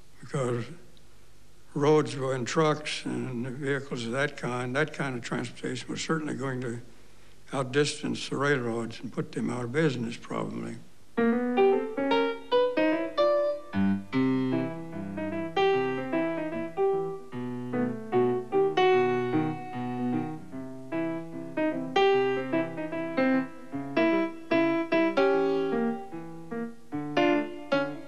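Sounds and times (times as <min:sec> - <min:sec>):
piano music: 0:11.2 - 0:28.0.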